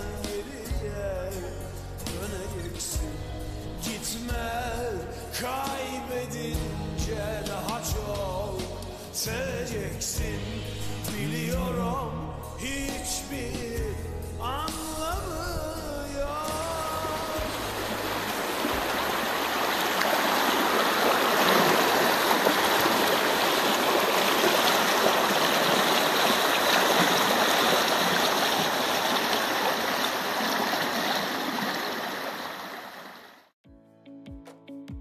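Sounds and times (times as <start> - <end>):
river water rushing: 17.0 - 33.4.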